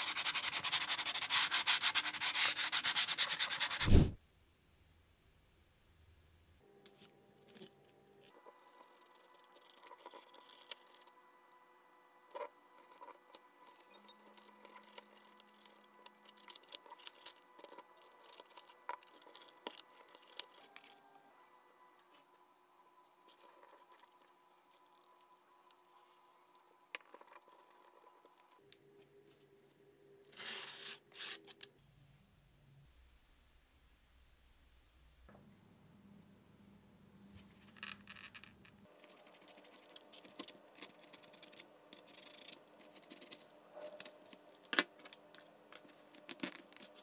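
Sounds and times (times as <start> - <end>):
knife cutting foam: 0.3 - 4.2.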